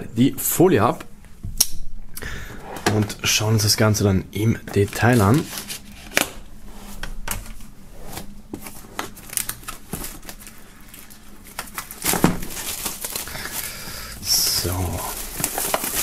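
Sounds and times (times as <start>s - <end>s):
plastic film crinkling: 8.6s - 16.0s.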